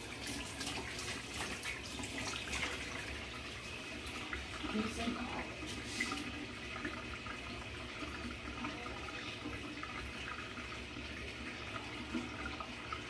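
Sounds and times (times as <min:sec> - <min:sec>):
small water splashes: 0:00.0 - 0:10.2.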